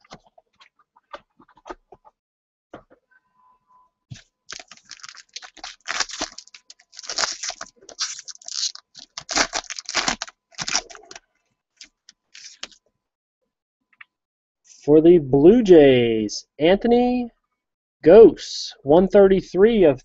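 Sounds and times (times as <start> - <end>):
plastic wrapper crackling: 4.1 - 12.8.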